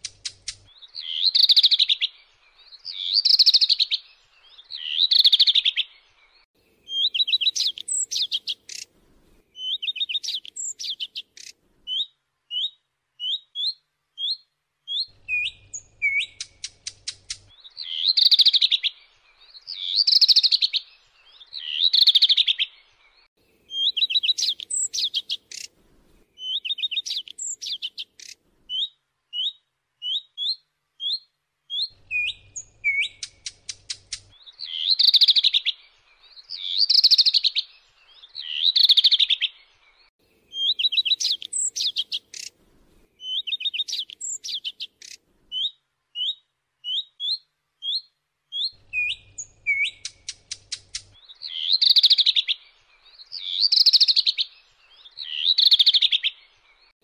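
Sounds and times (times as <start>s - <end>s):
bird whistling and ticking: 9.6s - 17.4s, 31.8s - 35.7s, 48.6s - 52.6s.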